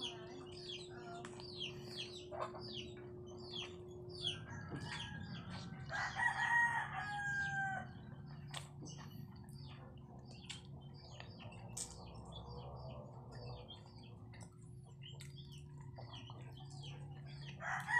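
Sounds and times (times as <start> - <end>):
small birds chirping: 0.0 - 17.9
steady low hum: 0.0 - 17.9
rooster crowing: 4.3 - 8.0, 17.6 - 17.9.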